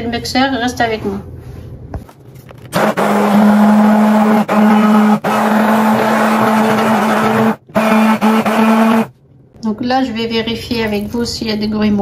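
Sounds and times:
immersion blender motor hum: 2.8s - 9.1s.

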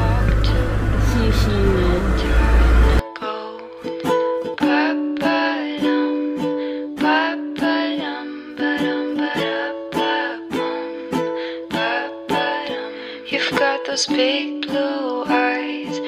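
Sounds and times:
plucked string instrumental music: 0.0s - 16.0s.

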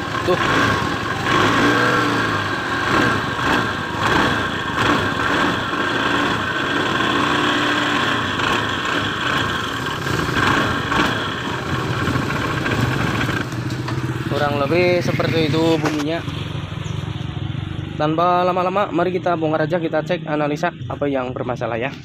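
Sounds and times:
scooter engine running: 0.0s - 18.0s
rough transmission sound: 0.0s - 22.0s.

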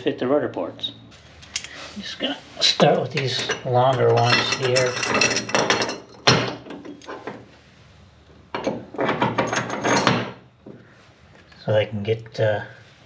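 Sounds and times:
bolts rattling on metal: 3.1s - 7.4s, 8.5s - 10.4s.

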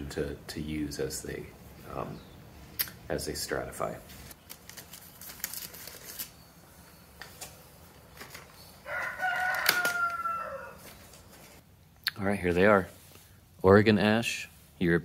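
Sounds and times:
rooster crowing: 8.8s - 11.1s.

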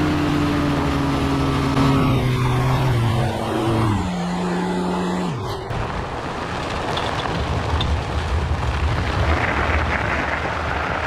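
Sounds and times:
wind rush on microphone: 5.6s - 11.0s.

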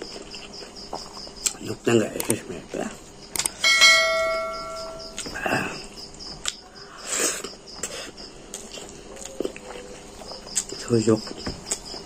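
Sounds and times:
crickets chirping: 0.0s - 12.0s
metallic bell-like ring: 3.6s - 5.2s.

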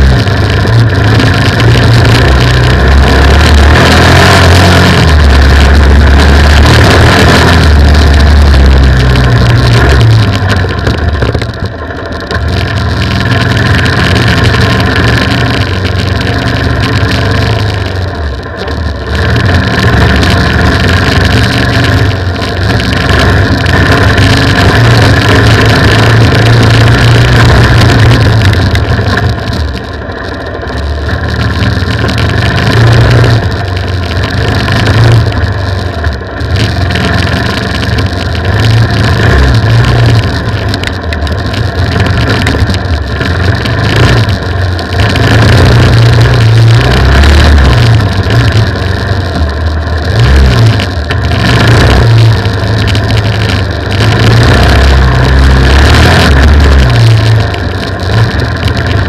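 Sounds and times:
off-road motorcycle engine revving: 0.0s - 59.0s.

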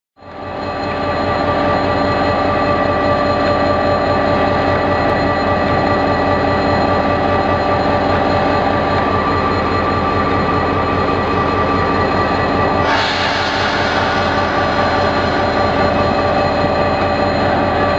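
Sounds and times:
steady whining tones: 0.4s - 17.9s
locomotive running past: 8.1s - 17.9s.

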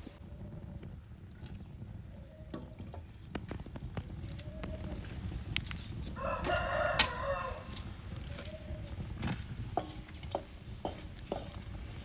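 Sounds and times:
rooster crowing: 6.2s - 7.8s
wooden spoon stirring frying pan: 7.7s - 12.0s.

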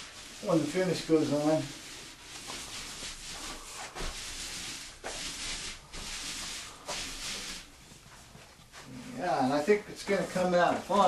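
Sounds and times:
paint roller rasping hiss: 0.0s - 7.8s.

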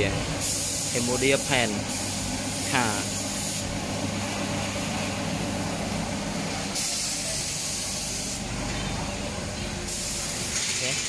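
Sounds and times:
compressed air hissing: 0.3s - 5.7s, 6.5s - 8.5s, 9.8s - 11.0s.

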